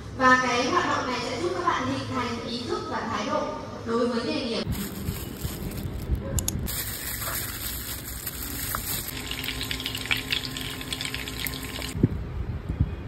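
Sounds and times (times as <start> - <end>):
fish sizzling in oil: 6.7 - 12.0.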